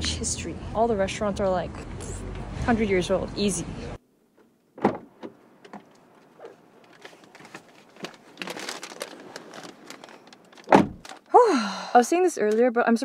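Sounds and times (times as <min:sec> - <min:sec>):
clothing movement: 0:04.3 - 0:11.3
car door shutting: 0:04.8 - 0:05.8, 0:10.7 - 0:11.0
paper bag rustling and crinkling: 0:06.3 - 0:11.3.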